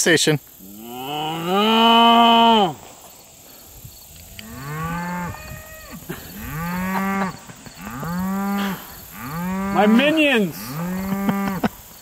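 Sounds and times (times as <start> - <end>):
cattle mooing: 0.7 - 2.7, 4.4 - 11.7.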